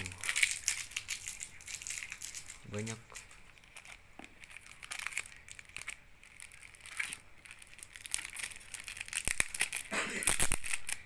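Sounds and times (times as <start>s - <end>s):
plastic sleeve crinkling: 0.0s - 11.0s.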